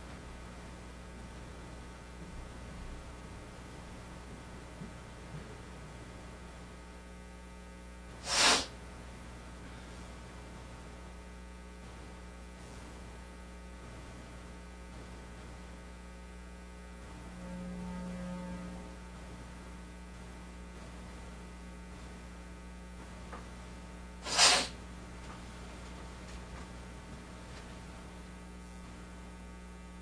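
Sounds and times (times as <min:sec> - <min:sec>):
electrical mains hum: 0:00.0 - 0:30.0
short sharp noise burst: 0:08.3 - 0:08.7.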